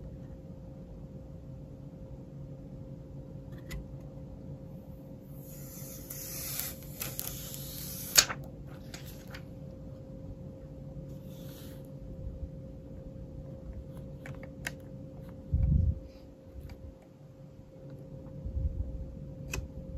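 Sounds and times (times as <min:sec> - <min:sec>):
plastic film crinkling: 0:06.4 - 0:09.5.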